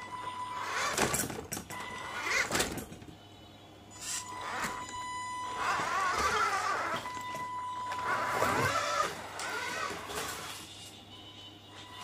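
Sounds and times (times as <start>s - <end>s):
toy car electric motor whining: 0.5s - 2.7s, 4.0s - 7.2s, 7.9s - 10.7s.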